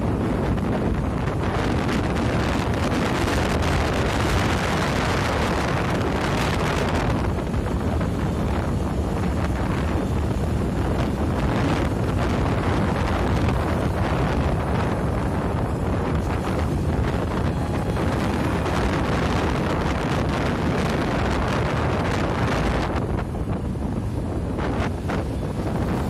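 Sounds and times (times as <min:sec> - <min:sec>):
road and engine noise: 0:00.0 - 0:26.0
wind buffeting microphone: 0:00.0 - 0:26.0.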